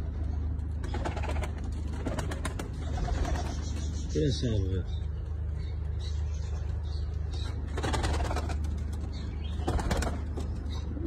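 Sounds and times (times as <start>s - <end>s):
steady low hum: 0.0s - 11.0s
pigeon wings flapping: 0.8s - 3.7s, 7.7s - 10.5s.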